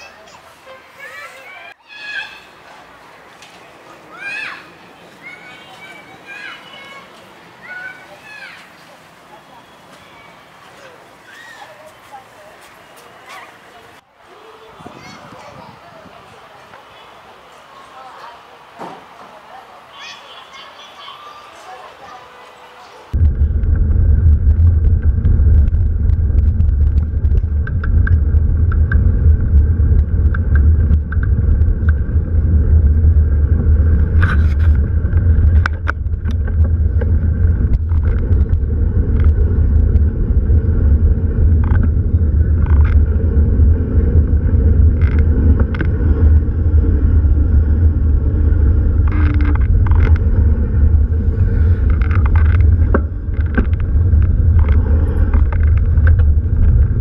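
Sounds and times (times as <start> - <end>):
vehicle engine rumble: 23.0 - 57.0.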